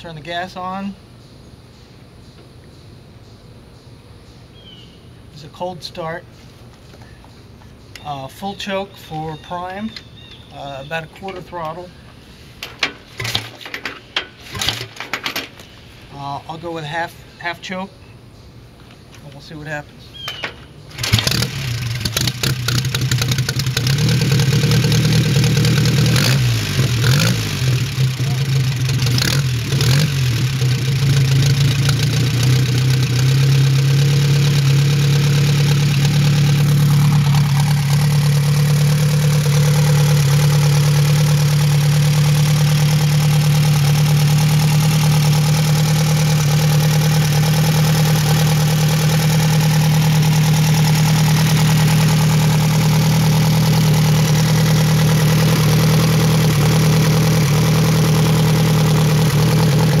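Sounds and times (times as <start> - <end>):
motorcycle engine idling: 20.1 - 60.0.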